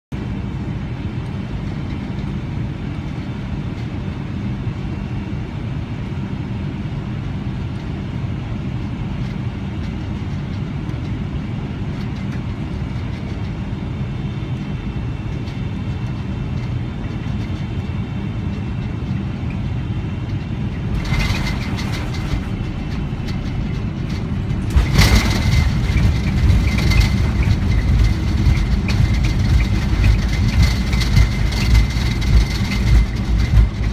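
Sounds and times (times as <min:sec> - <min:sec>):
airliner cabin drone: 0:00.1 - 0:33.9
jet rolling out rumble: 0:00.2 - 0:33.9
thin steady whine: 0:08.5 - 0:33.9.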